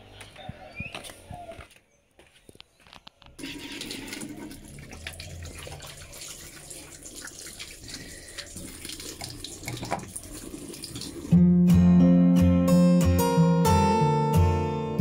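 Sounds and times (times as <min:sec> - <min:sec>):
water splashing from hands: 0:03.4 - 0:11.3
tap water running into sink: 0:03.4 - 0:11.4.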